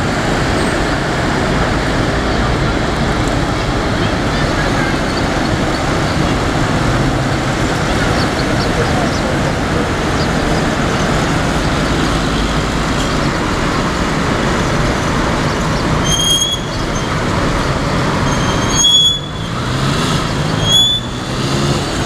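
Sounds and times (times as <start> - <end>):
road traffic noise: 0.0 - 22.0
brief high squeak: 16.0 - 16.8, 18.3 - 19.5.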